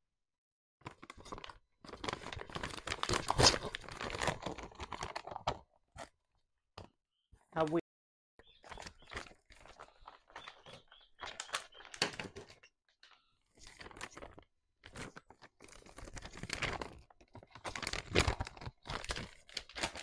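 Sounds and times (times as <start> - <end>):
packaging tearing and crinkling: 0.9 - 5.6, 9.0 - 12.6, 13.6 - 20.0.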